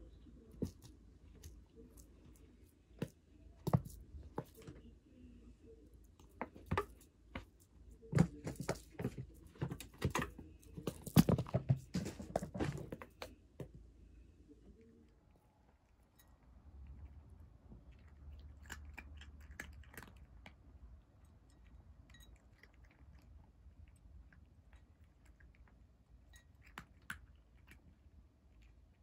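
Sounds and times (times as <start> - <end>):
cat playing with toy on carpet: 0.4 - 4.9, 6.1 - 13.8.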